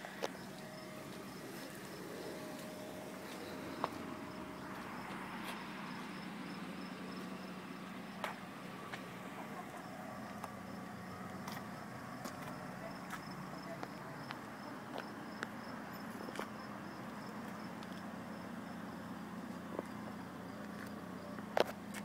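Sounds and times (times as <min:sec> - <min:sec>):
insects chirping: 0:00.0 - 0:08.4, 0:09.8 - 0:21.4
car engine idling: 0:00.0 - 0:22.0.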